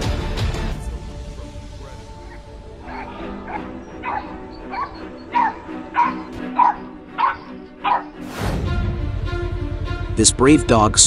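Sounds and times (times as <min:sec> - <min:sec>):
background music: 0:00.0 - 0:11.0
small dog barking: 0:02.3 - 0:08.2.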